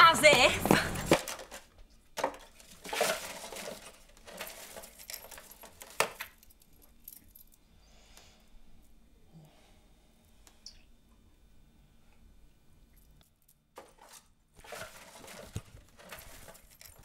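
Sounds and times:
metal bead chain jangling: 0:16.2 - 0:17.0.

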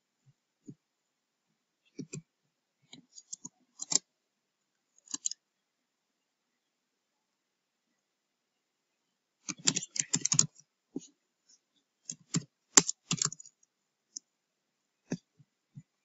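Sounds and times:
keyboard keys clicking: 0:05.1 - 0:05.4, 0:09.5 - 0:10.5, 0:12.1 - 0:13.5.

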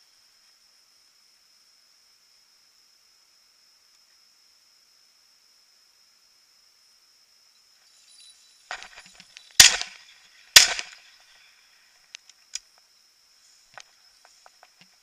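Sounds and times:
brief rustle: 0:07.9 - 0:12.6
shotgun shots with echo: 0:09.6 - 0:11.0.

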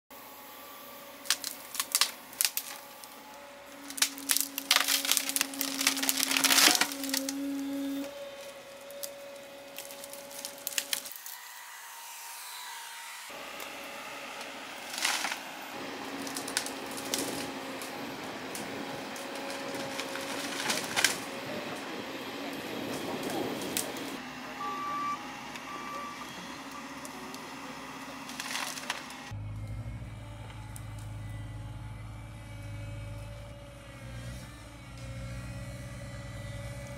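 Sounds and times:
excavator engine and hydraulics hum: 0:00.1 - 0:36.9
wood cracking and splintering: 0:01.2 - 0:11.4, 0:14.8 - 0:24.2, 0:28.2 - 0:29.7.

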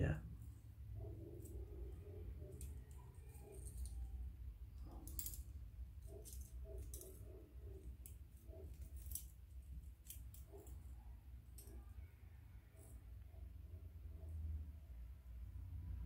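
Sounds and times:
metal wire puzzle clicking: 0:01.4 - 0:12.1.

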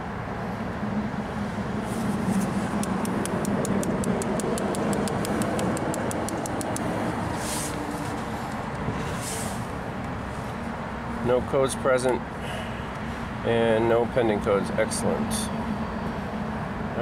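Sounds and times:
background traffic rumble: 0:00.0 - 0:17.0
light rapid ticks: 0:02.8 - 0:07.0.

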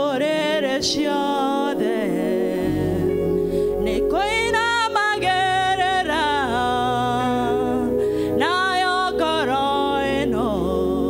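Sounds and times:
instrumental accompaniment: 0:00.0 - 0:11.0
women singing gospel song: 0:00.0 - 0:11.0.

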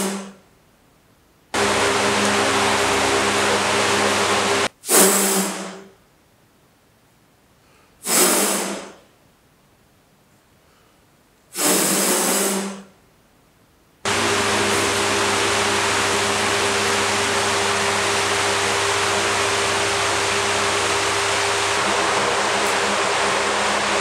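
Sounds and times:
floor fans running: 0:01.5 - 0:04.7, 0:14.1 - 0:24.0.

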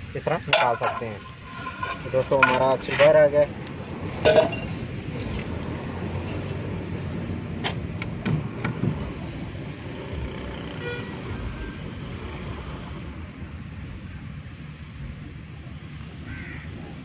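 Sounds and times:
road traffic rumble: 0:00.0 - 0:17.0
vehicle horn toot: 0:10.8 - 0:11.3.

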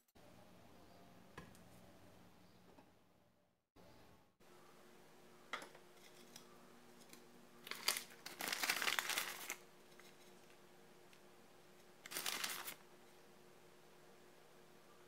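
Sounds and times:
plastic bag crinkling: 0:07.6 - 0:10.1, 0:12.0 - 0:12.8.

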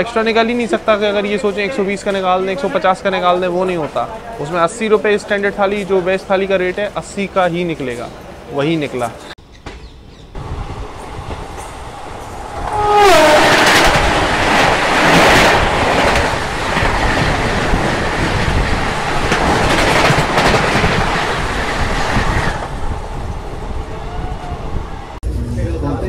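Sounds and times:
train wheels clattering: 0:09.6 - 0:25.2
train horn dropping in pitch: 0:12.6 - 0:13.8.

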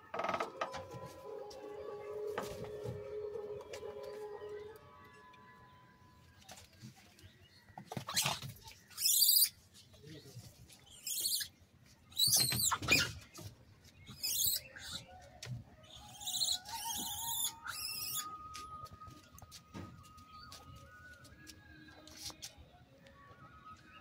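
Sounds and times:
monkeys screeching: 0:09.0 - 0:09.5, 0:11.0 - 0:11.5, 0:12.2 - 0:13.1, 0:14.2 - 0:15.0, 0:15.9 - 0:18.4.

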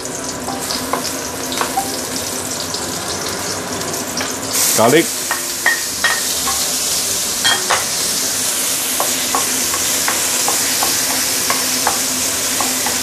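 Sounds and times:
ginger and garlic sizzling in oil: 0:00.0 - 0:13.0.

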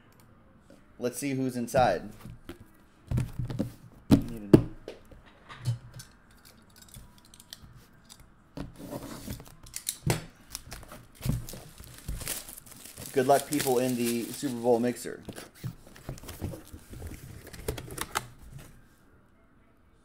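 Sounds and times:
plastic wrap snips and knocks: 0:10.0 - 0:14.6.

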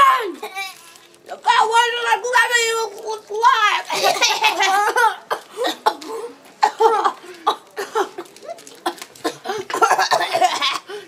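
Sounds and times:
boys laughing: 0:03.8 - 0:06.0.

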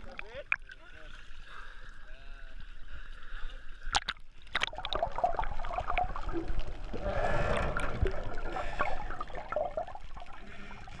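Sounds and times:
water gurgling and bubbling: 0:03.9 - 0:11.0.

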